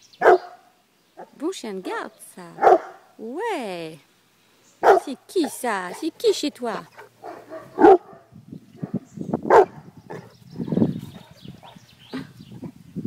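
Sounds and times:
dog barking: 0.2s - 1.4s, 2.6s - 3.1s, 4.8s - 5.1s, 7.0s - 10.3s.

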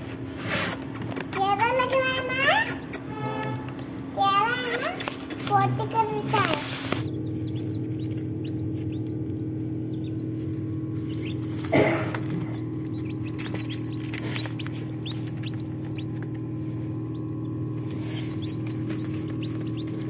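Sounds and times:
steady low hum: 0.0s - 20.0s
chicks peeping: 0.3s - 20.0s.

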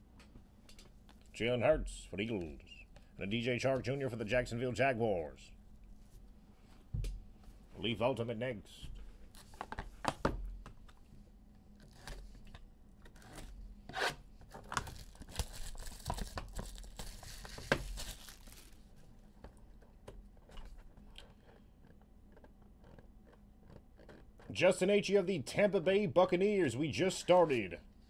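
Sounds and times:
plastic wrapper tearing and crinkling: 14.6s - 18.9s.

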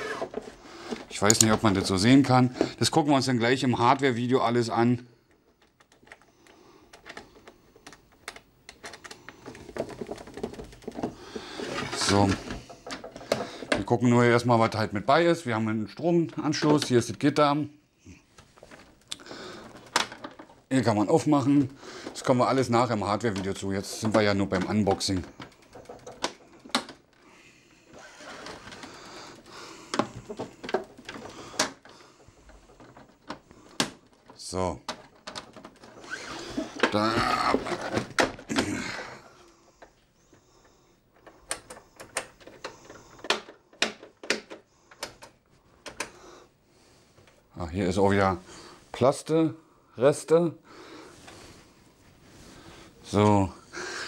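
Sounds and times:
hands rubbing plastic housing: 5.3s - 13.9s, 18.3s - 38.3s
plastic knocks and clicks: 5.3s - 14.0s, 18.4s - 20.7s, 21.6s - 27.2s, 28.4s - 38.8s, 41.1s - 46.2s.

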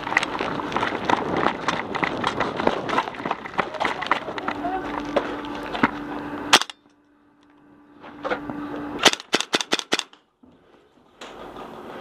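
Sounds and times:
airsoft rifle shots: 6.5s - 6.8s, 9.0s - 10.2s.

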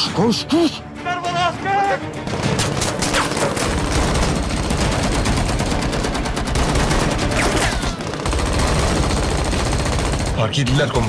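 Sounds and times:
rapid automatic gunfire: 2.3s - 11.0s.

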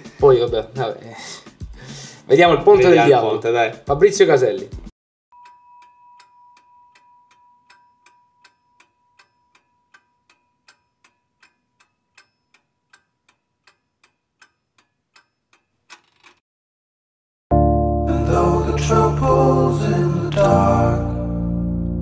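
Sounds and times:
high ringing tone: 5.3s - 11.3s
clock ticking: 5.4s - 16.3s.

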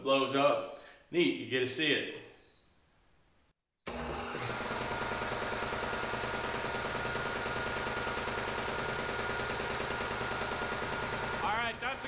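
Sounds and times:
air compressor running: 3.9s - 12.0s.

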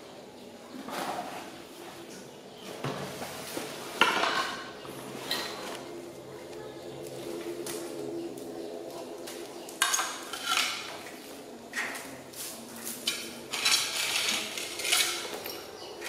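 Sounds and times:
plastic objects clattering on tile: 4.0s - 5.8s, 9.3s - 12.2s, 12.8s - 16.0s.

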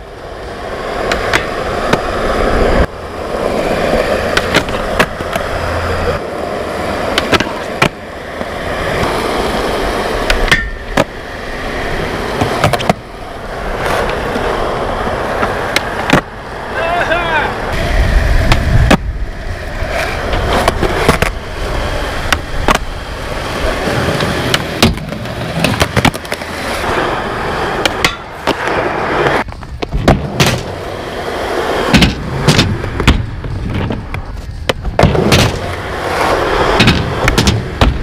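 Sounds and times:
skateboard trucks grinding metal: 0.0s - 38.0s
skateboard wheels rumbling: 0.0s - 38.0s
skateboard tail pop clacks: 1.0s - 2.1s, 4.2s - 5.5s, 7.1s - 9.2s, 10.2s - 11.1s, 12.3s - 13.0s, 15.4s - 16.3s, 18.4s - 19.1s, 20.0s - 21.4s, 22.3s - 22.9s, 24.1s - 26.5s, 27.8s - 30.8s, 31.9s - 38.0s.

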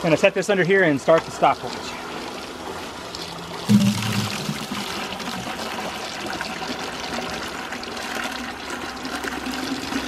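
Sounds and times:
water pouring into plastic bucket: 2.6s - 10.0s.

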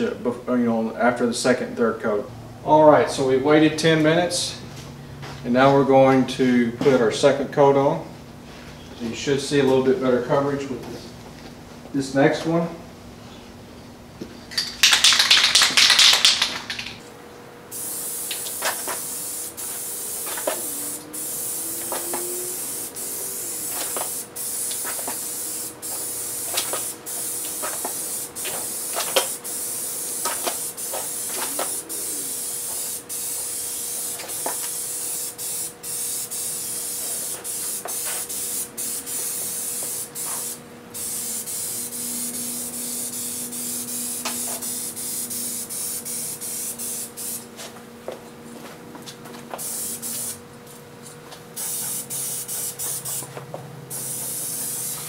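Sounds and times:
paint spray gun hissing: 17.7s - 47.4s, 49.6s - 50.4s, 51.6s - 55.0s.

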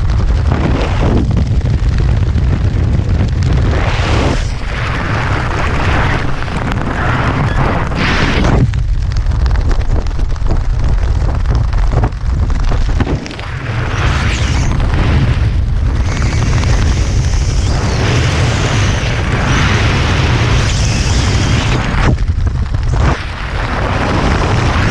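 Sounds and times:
wind buffeting microphone: 0.0s - 24.9s.

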